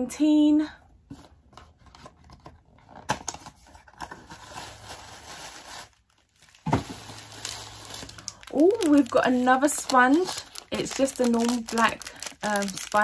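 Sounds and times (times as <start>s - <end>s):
tissue paper rustling: 3.6s - 13.0s.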